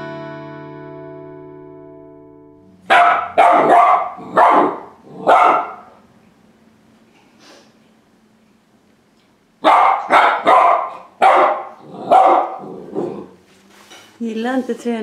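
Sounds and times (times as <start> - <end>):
puppy barking: 2.9 - 6.0, 9.6 - 13.3.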